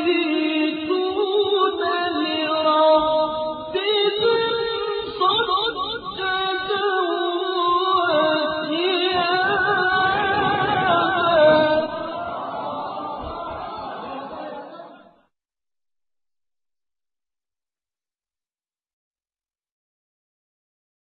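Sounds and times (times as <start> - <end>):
person chanting melodically: 0.0 - 15.2.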